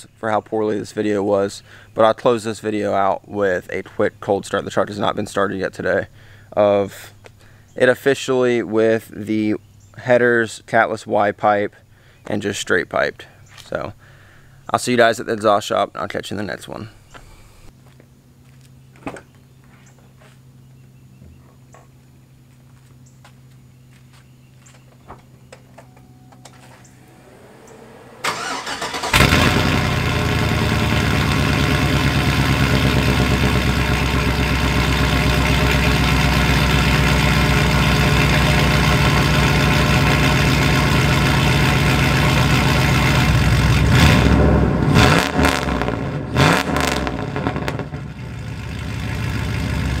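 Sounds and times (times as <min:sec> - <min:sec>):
loud engine idling: 0:27.0 - 0:45.0, 0:48.0 - 0:50.0.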